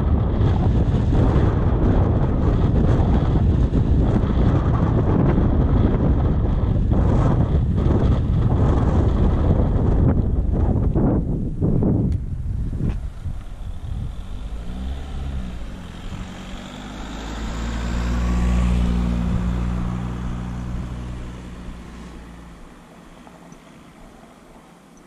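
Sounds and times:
wind buffeting microphone: 0:00.0 - 0:23.2
car engine driving past: 0:12.6 - 0:24.9.

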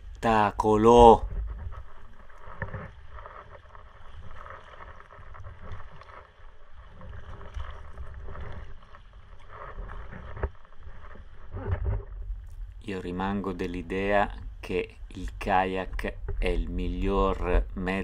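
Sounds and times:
paddle strokes splashing water: 0:00.0 - 0:12.8.

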